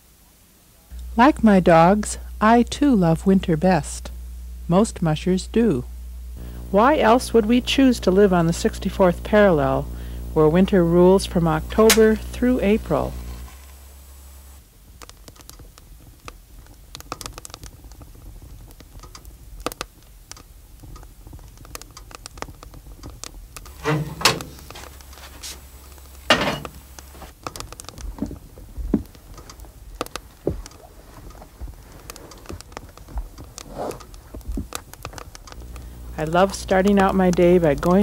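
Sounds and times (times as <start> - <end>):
cookstove clicks and knocks: 23.7 - 24.8, 26.3 - 26.8.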